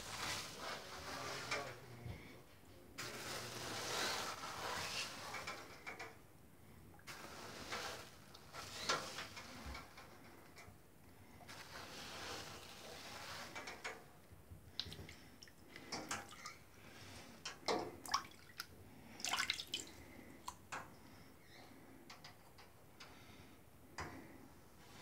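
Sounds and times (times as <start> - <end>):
water drips and plops: 14.7 - 16.6, 18.0 - 20.6
water splashing in a tub: 14.7 - 16.7, 18.0 - 20.6.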